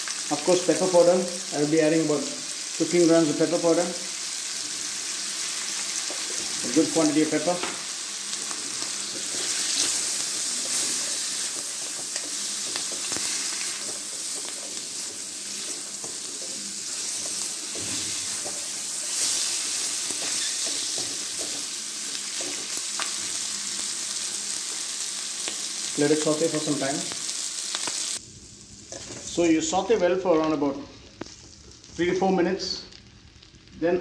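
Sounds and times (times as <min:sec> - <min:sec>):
chicken sizzling in a pan: 0:00.0 - 0:34.0
spatula scraping metal pan: 0:20.1 - 0:21.6.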